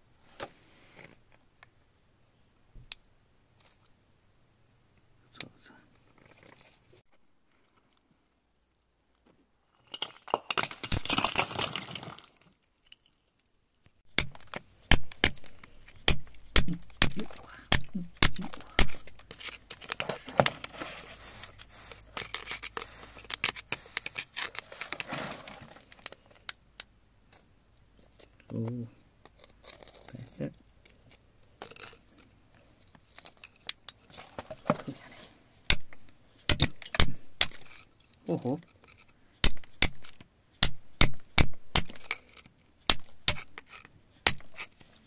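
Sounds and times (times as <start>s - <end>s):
chisel scraping through gravelly clay: 29.3s - 30.5s.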